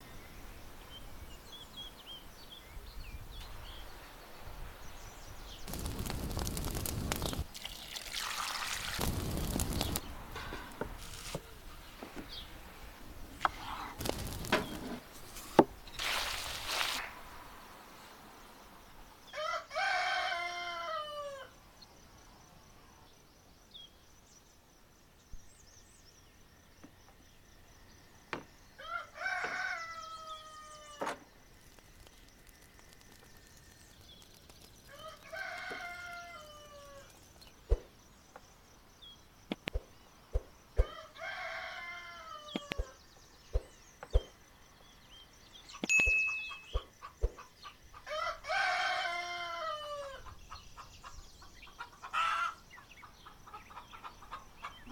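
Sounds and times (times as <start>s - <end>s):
rooster crowing: 19.3s - 21.6s, 28.8s - 31.0s, 34.9s - 37.1s, 40.8s - 43.0s, 48.0s - 50.3s.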